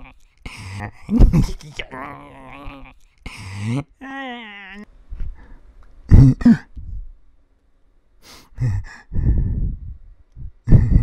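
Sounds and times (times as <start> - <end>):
man huffing and breathing: 3.0 - 3.9, 8.2 - 11.0.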